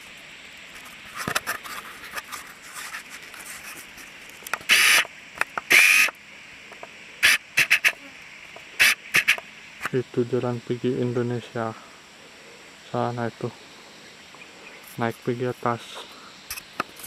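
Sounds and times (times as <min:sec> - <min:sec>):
insects buzzing: 0:00.0 - 0:17.0
loud rasping bursts: 0:04.6 - 0:05.1, 0:05.7 - 0:06.2, 0:07.2 - 0:08.0, 0:08.8 - 0:09.4.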